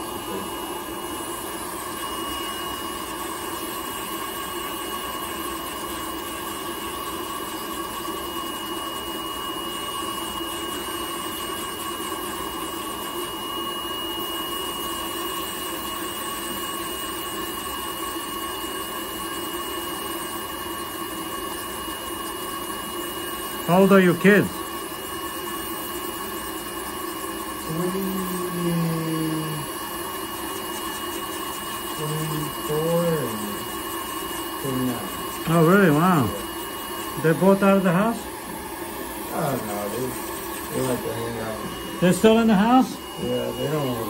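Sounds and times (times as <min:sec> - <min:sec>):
nail drill whining: 0:20.3 - 0:44.0.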